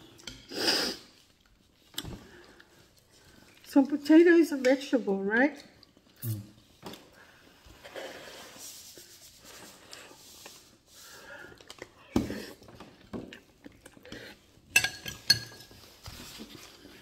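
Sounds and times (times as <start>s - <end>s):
soft chewing: 12.9s - 14.6s.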